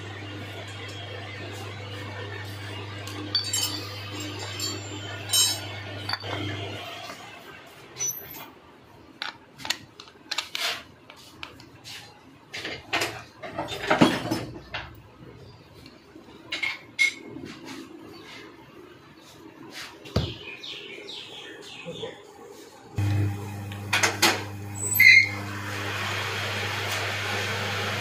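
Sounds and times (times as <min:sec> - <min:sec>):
metal clatter: 0:03.3 - 0:06.4
metal parts clinking and knocking: 0:03.3 - 0:06.5.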